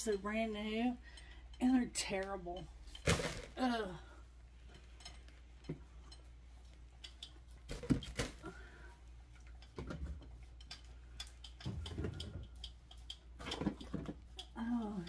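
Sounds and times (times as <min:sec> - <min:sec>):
plastic bottles clicking and knocking: 0:07.7 - 0:08.5, 0:11.5 - 0:14.6.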